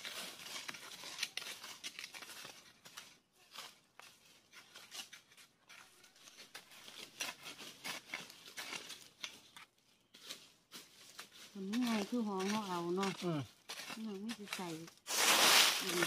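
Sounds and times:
hands digging through sandy soil: 10.3 - 16.0.

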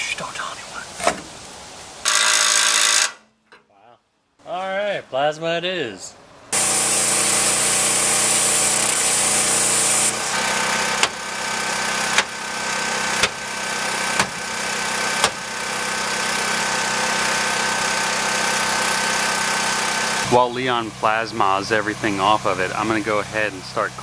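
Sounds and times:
steady machine hum: 6.4 - 24.0
plasma cutter hissing: 6.6 - 16.0
hammer striking metal bolt: 11.0 - 11.2, 12.1 - 12.4, 13.2 - 13.4, 14.1 - 14.5, 15.2 - 15.4.

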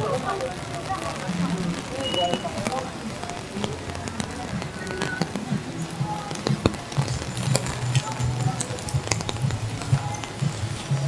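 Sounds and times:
people's voices: 0.0 - 11.0
raindrop ticks: 0.0 - 11.0
music with low bass: 3.0 - 11.0.

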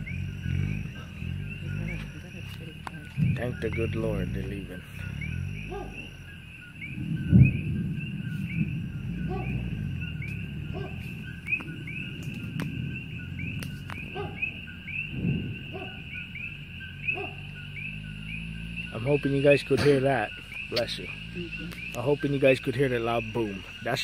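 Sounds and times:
low rumble: 0.0 - 18.9
night insects chirping: 0.0 - 24.0
dogs barking in distance: 4.8 - 18.1
deep volcanic boom: 6.9 - 10.8, 15.0 - 15.8.

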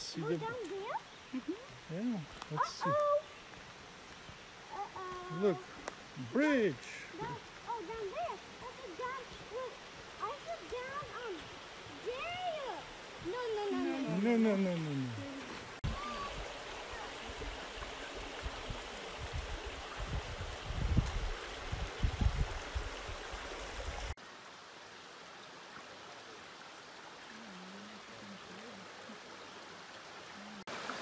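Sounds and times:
stream trickling over stones: 0.0 - 31.0.

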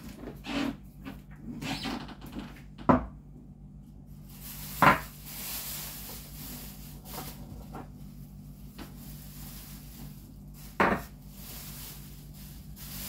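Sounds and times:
soft hiss: 8.5 - 13.0.

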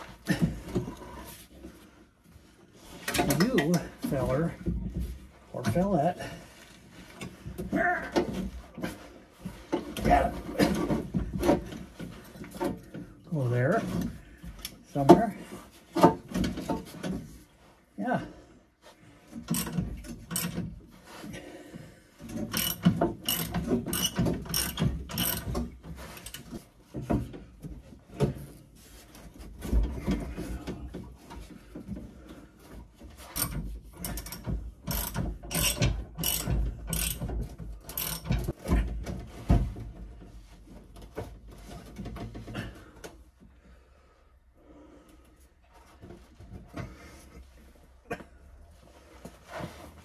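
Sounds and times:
metal parts knocking: 22.3 - 26.5, 33.4 - 38.6
ratchet wrench clicking: 22.5 - 25.5, 34.1 - 37.2, 37.9 - 38.3.

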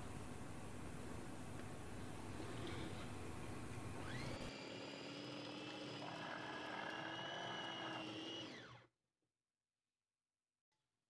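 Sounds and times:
food chopper motor running: 4.0 - 8.9.

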